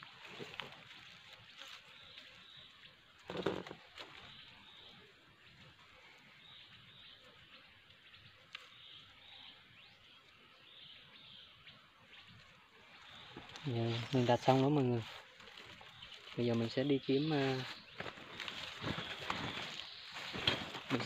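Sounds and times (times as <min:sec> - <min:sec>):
dry leaves rustling: 0:00.0 - 0:04.8, 0:12.3 - 0:21.0.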